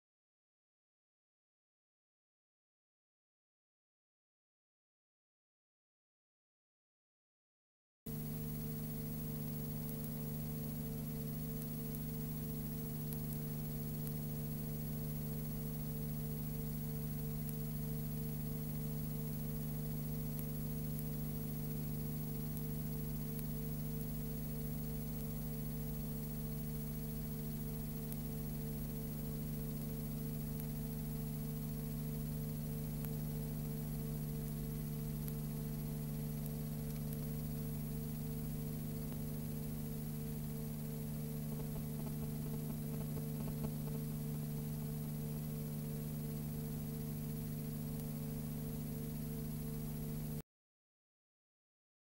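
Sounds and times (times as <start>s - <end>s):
constant hiss: 8.1s - 50.4s
electrical hum: 8.1s - 50.4s
faint clicks: 8.3s - 16.6s, 22.4s - 31.4s, 35.2s - 35.5s, 36.4s - 39.5s, 41.3s - 45.1s.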